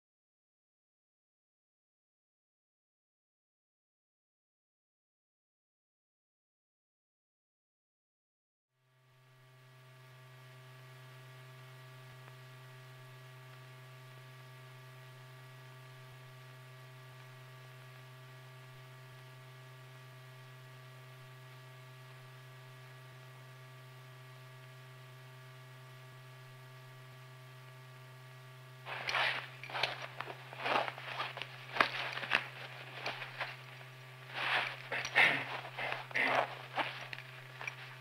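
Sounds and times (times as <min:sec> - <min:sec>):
low electrical hum: 0:08.8 - 0:38.0
loud noisy scrapes: 0:28.9 - 0:38.0.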